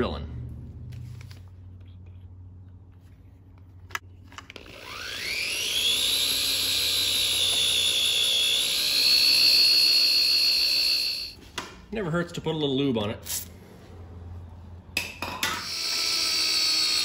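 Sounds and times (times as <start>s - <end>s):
drill click: 4.3s - 11.4s
power drill boring into metal: 4.6s - 11.4s, 15.6s - 17.0s.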